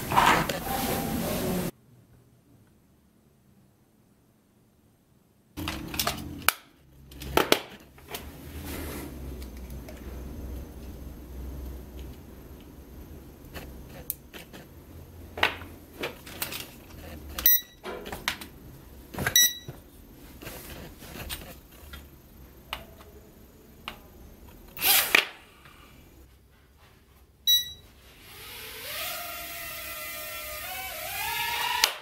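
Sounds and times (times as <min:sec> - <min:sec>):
short high electronic beeps: 0:17.4 - 0:17.8, 0:27.5 - 0:27.8.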